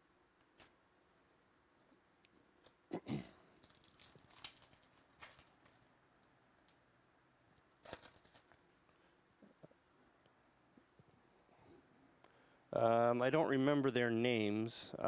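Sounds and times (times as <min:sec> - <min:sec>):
foil wrapper crinkling and tearing: 0:03.5 - 0:06.0, 0:07.6 - 0:08.7.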